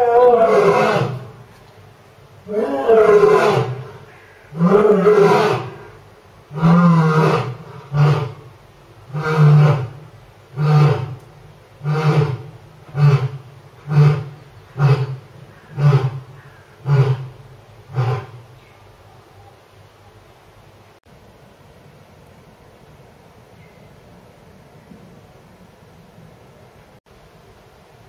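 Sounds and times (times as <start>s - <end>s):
lion roaring: 0.0s - 1.4s, 2.5s - 8.5s, 9.1s - 11.2s, 11.8s - 18.4s.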